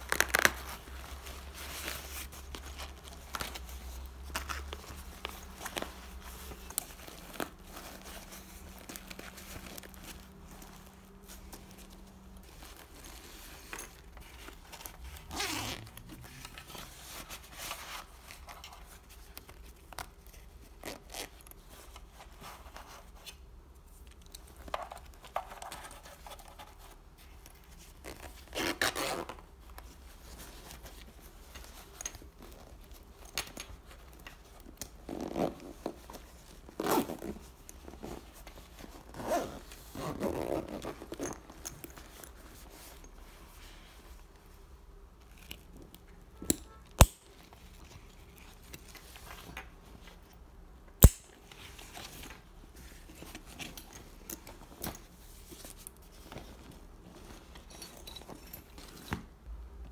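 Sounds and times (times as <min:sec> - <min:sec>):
fabric rubbing and scraping: 0:00.0 - 0:23.4, 0:25.8 - 0:50.4
zipper rasps: 0:15.2 - 0:16.5, 0:28.5 - 0:29.4, 0:39.0 - 0:41.5.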